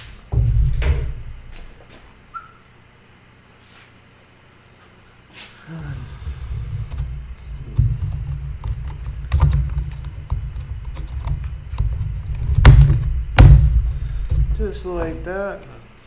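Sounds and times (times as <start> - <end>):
heavy thumps: 0.0 - 2.2, 5.9 - 15.5
steady low rumble: 0.0 - 2.3, 5.7 - 15.8.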